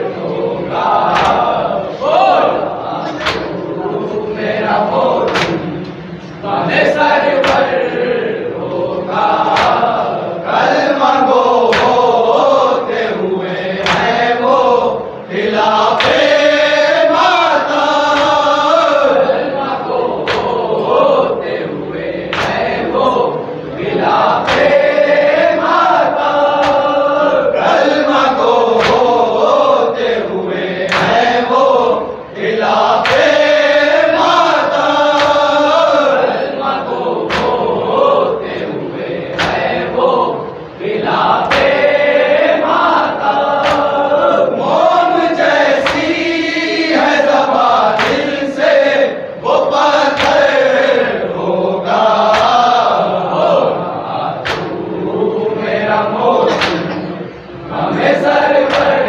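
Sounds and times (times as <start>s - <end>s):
men chanting in chorus: 0.0s - 59.0s
reciter leading chant: 0.0s - 59.0s
chest-beating slaps: 1.1s - 1.6s, 3.1s - 3.6s, 5.2s - 6.1s, 7.4s - 7.8s, 9.4s - 10.1s, 11.4s - 12.4s, 13.8s - 14.3s, 15.7s - 16.5s, 20.2s - 21.0s, 22.3s - 22.9s, 24.3s - 25.0s, 25.7s - 27.0s, 28.4s - 29.5s, 30.9s - 31.4s, 32.8s - 33.6s, 34.2s - 35.9s, 37.2s - 38.0s, 39.3s - 40.0s, 41.4s - 41.9s, 43.6s - 44.1s, 45.5s - 47.1s, 48.0s - 48.7s, 50.0s - 50.9s, 52.2s - 53.0s, 54.4s - 55.0s, 56.4s - 57.1s, 58.6s - 59.0s.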